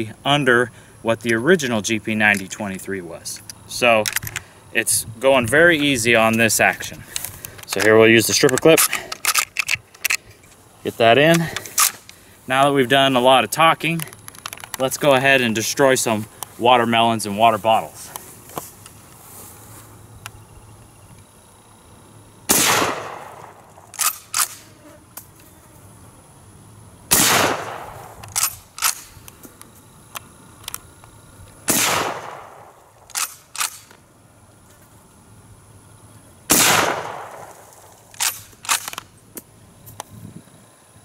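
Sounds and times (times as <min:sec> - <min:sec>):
rifle bolt clicks: 0:03.4 - 0:04.4, 0:07.2 - 0:10.2, 0:11.3 - 0:12.2, 0:23.4 - 0:24.6, 0:27.7 - 0:29.4, 0:31.8 - 0:34.0, 0:36.7 - 0:39.1
rifle shots with echo: 0:22.5 - 0:24.5, 0:27.1 - 0:28.5, 0:31.7 - 0:33.8, 0:36.5 - 0:38.4.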